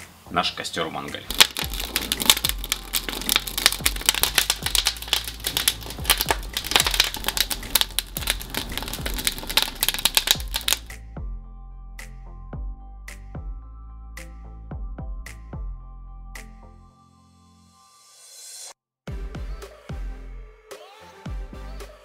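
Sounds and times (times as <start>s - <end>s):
soft background music: 0.0s - 17.8s
wood fire crackling and popping: 1.3s - 10.9s.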